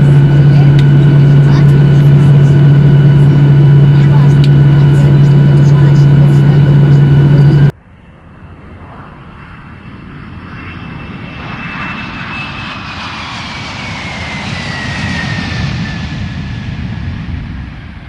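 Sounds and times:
loud droning hum: 0:00.0 - 0:09.8
jet engine whine: 0:00.0 - 0:18.0.

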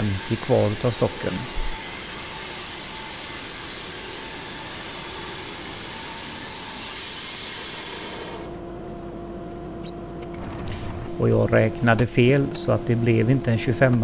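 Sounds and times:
band sawmill sawing log: 0:00.0 - 0:08.5
low steady hum: 0:08.5 - 0:14.0.

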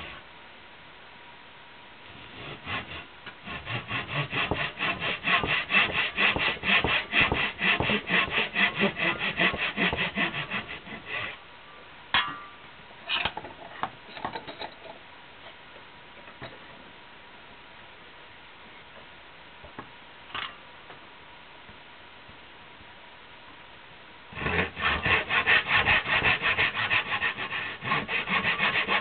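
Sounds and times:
hand sawing: 0:02.2 - 0:11.4, 0:24.4 - 0:29.0.

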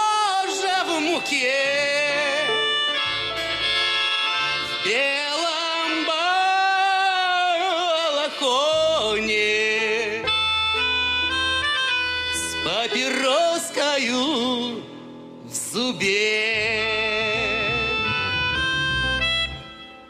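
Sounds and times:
acoustic guitar: 0:00.0 - 0:20.0
harmonica: 0:00.0 - 0:20.0
plucked double bass: 0:16.6 - 0:19.8.

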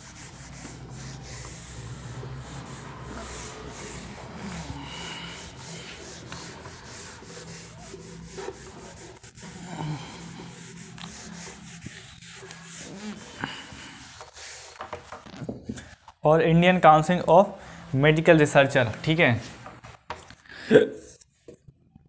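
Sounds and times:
rubbing and scratching: 0:00.0 - 0:16.3.

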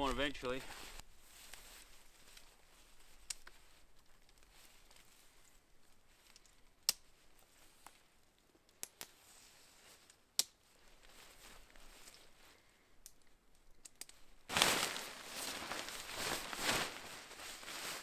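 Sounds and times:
tent fabric rustling: 0:00.6 - 0:06.2, 0:09.1 - 0:12.7, 0:14.4 - 0:18.0
tent clips snapping onto poles: 0:03.2 - 0:03.6, 0:08.7 - 0:09.2, 0:10.0 - 0:10.6, 0:13.0 - 0:14.3.

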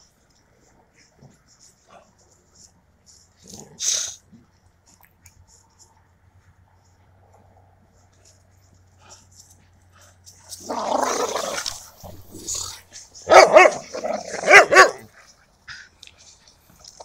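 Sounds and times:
dogs growling: 0:03.4 - 0:04.0, 0:10.5 - 0:15.1
dogs barking: 0:13.2 - 0:15.2.

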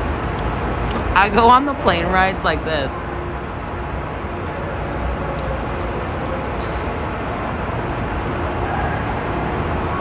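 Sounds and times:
vehicle rumble: 0:00.0 - 0:10.0.

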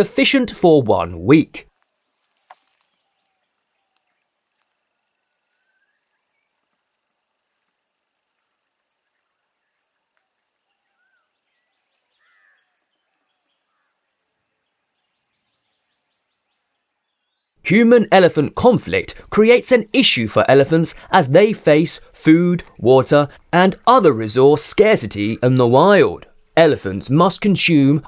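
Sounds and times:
high-pitched insect chorus: 0:01.7 - 0:17.6
faint bird chirps: 0:02.3 - 0:06.6, 0:08.3 - 0:17.6.

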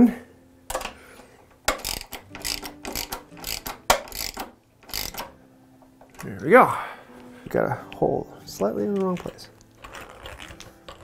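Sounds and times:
screwdriver grating click: 0:01.7 - 0:05.3.

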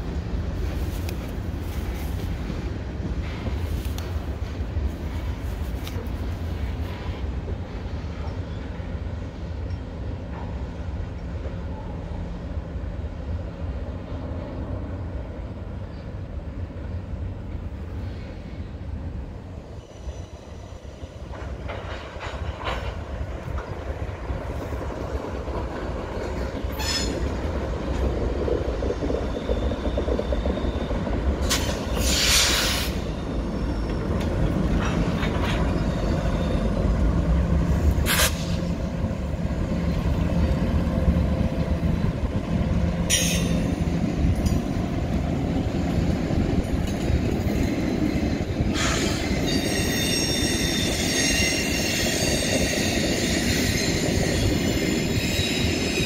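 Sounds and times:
freight train rumbling: 0:00.0 - 0:56.0
wheel squeals: 0:48.8 - 0:56.0.

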